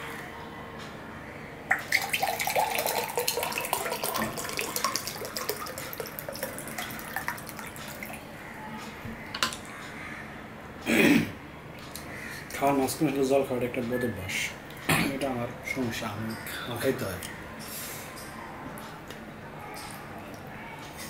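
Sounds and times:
water pouring into glass: 0:01.7 - 0:08.2.

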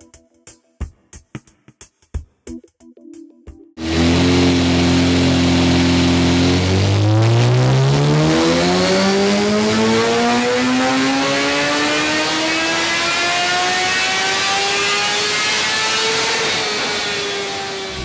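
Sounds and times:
motorcycle engine revving on dyno: 0:03.8 - 0:18.0.

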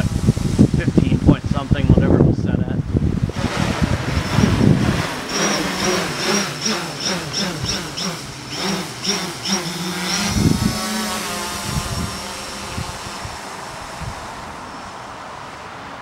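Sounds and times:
drone motors humming: 0:02.9 - 0:15.6.

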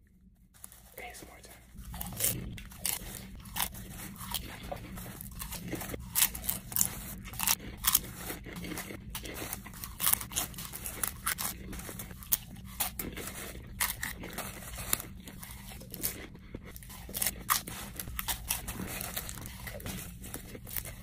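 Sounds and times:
popcorn crunching and chewing: 0:00.0 - 0:21.0.

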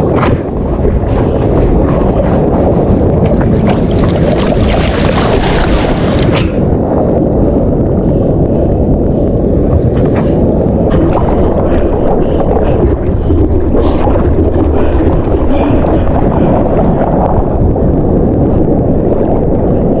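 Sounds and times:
wind rumble on microphone: 0:00.0 - 0:20.0
water sloshing and splashing: 0:03.2 - 0:06.8.

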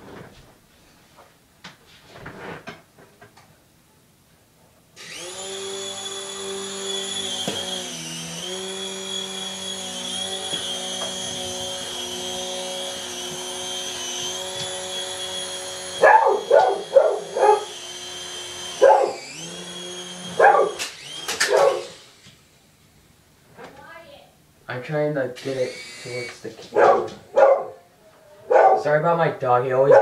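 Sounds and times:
toy helicopter motor whining: 0:05.0 - 0:22.4, 0:25.4 - 0:26.6
dog barking: 0:16.0 - 0:17.7, 0:18.8 - 0:19.2, 0:20.4 - 0:20.8, 0:21.5 - 0:21.9, 0:26.7 - 0:27.8, 0:28.5 - 0:29.0.

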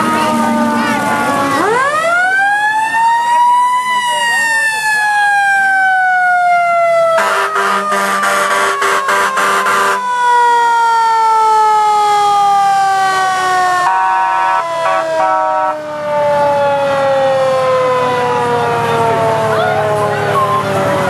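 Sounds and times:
mechanical siren winding down: 0:00.0 - 0:21.0
air horn blasts: 0:07.2 - 0:10.1, 0:13.8 - 0:15.8.

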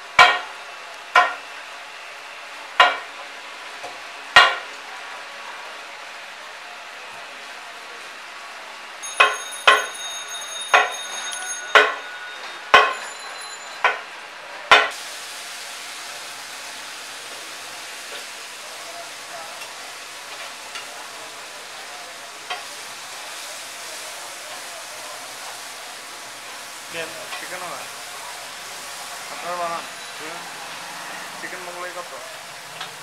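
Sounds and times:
hot oil sizzling: 0:00.0 - 0:33.0
sharp metallic clangs: 0:09.0 - 0:14.0.

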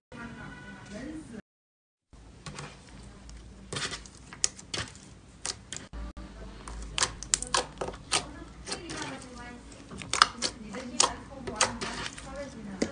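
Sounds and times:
slime clicking and popping: 0:06.7 - 0:08.8, 0:10.0 - 0:11.8.

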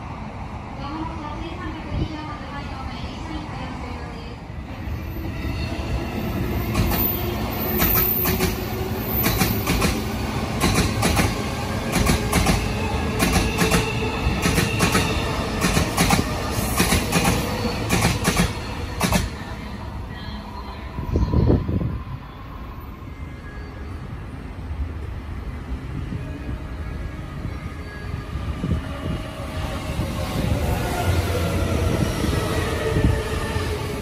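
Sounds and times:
train rumble: 0:04.8 - 0:23.2
train wheels clacking over rail joints: 0:10.6 - 0:19.3.

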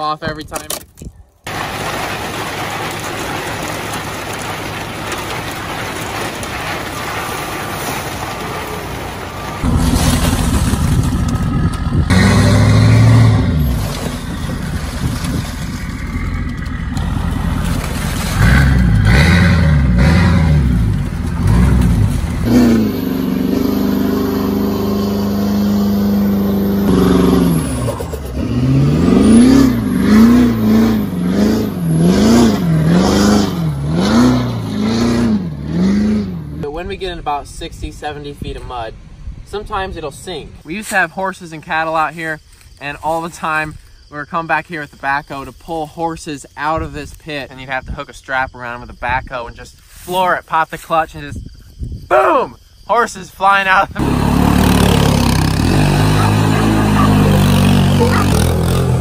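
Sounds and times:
truck engine revving: 0:01.5 - 0:36.6, 0:53.9 - 0:59.0.

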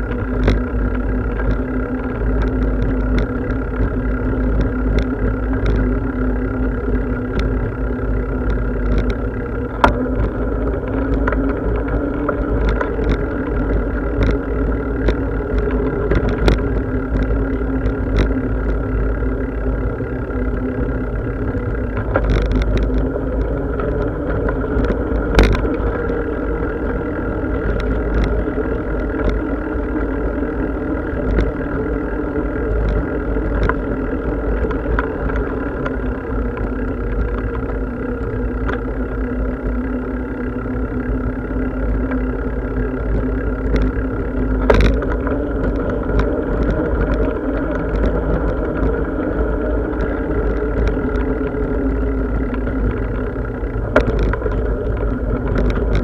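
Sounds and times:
bicycle clicks and knocks: 0:00.0 - 0:56.0
bicycle riding rumble: 0:00.0 - 0:56.0.

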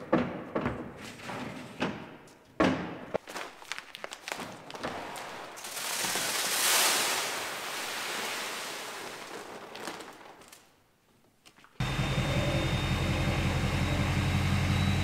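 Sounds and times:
seed corn pouring into plastic box: 0:05.6 - 0:10.6.

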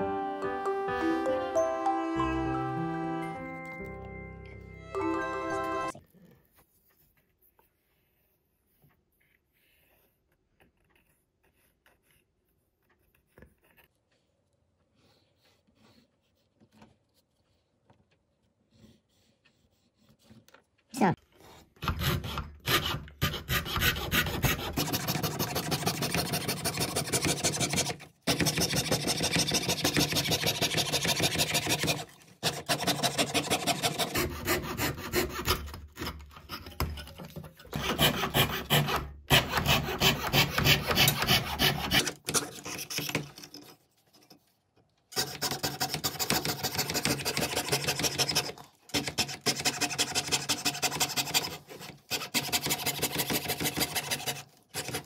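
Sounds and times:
wood being sanded by hand: 0:21.9 - 0:35.7, 0:37.8 - 0:42.1.

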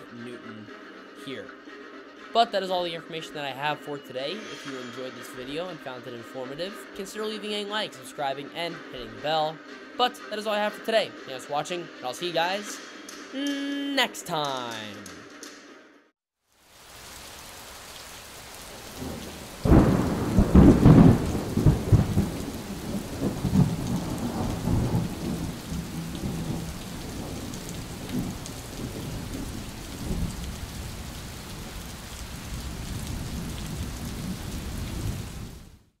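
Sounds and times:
steady rain falling: 0:16.4 - 0:35.9
thunder rumbling: 0:18.7 - 0:35.7.

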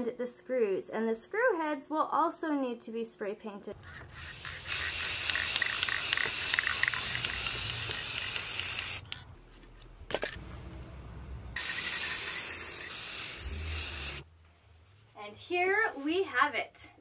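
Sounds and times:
aerosol spray can spraying: 0:03.8 - 0:09.2, 0:11.6 - 0:14.2.

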